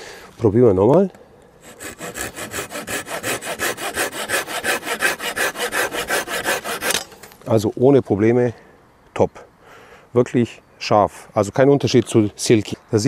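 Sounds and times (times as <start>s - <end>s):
hand saw sawing wood: 1.6s - 7.1s.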